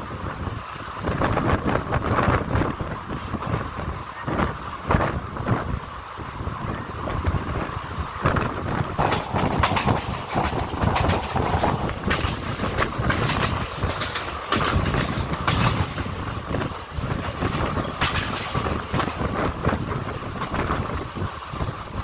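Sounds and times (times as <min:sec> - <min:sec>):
train wheels rumbling on track: 0:00.0 - 0:22.0
wheels clacking over rails: 0:07.0 - 0:22.0.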